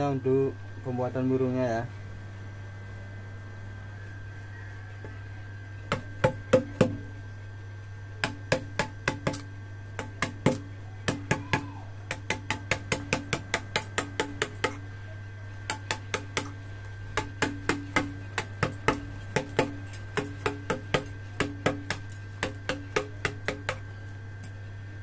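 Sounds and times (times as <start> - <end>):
mallet striking chisel on stone: 8.2 - 11.5, 12.1 - 14.8, 17.2 - 23.8.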